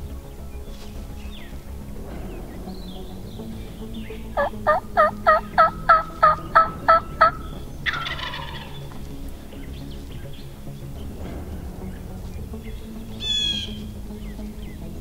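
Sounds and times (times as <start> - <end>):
turkey yelps: 4.4 - 8.8
turkey gobble: 4.4 - 9.0.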